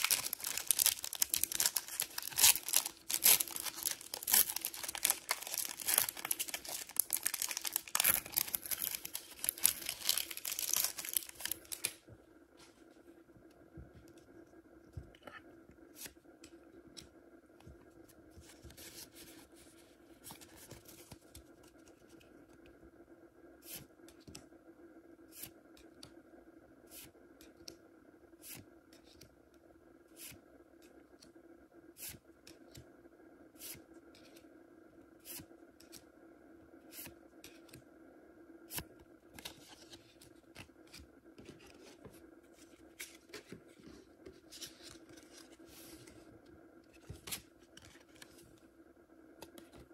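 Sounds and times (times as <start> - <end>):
trading card clicks and rustling: 0.0 - 12.0
faint room hum: 0.0 - 49.9.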